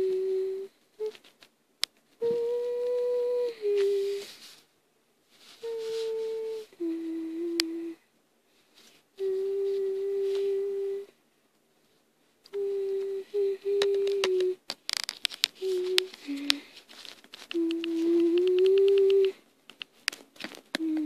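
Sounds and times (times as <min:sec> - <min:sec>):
person humming: 0:00.0 - 0:01.2, 0:02.2 - 0:04.4, 0:05.6 - 0:08.1, 0:09.2 - 0:11.2, 0:12.5 - 0:14.6, 0:15.6 - 0:16.8, 0:17.5 - 0:19.4, 0:20.8 - 0:21.0.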